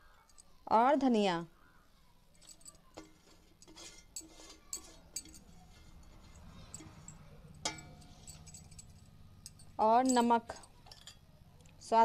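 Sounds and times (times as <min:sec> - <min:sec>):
metal plate clinks and scrapes: 0:02.4 - 0:11.2.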